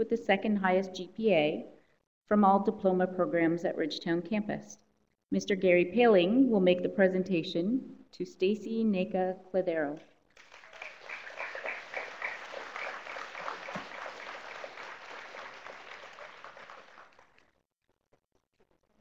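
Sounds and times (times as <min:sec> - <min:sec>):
audience applauding: 0:10.4 - 0:17.4.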